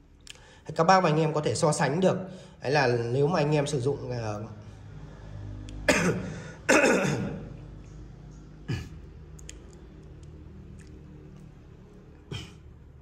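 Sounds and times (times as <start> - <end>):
man coughing: 5.9 - 7.5, 12.3 - 12.7.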